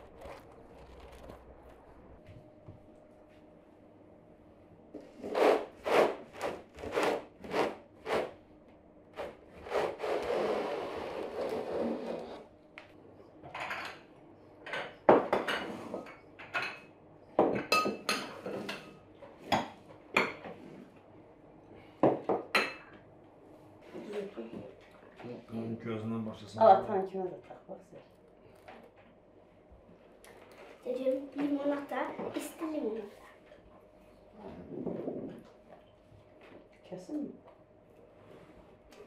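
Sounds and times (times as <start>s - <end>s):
glasses clinking on table: 14.7s - 18.9s.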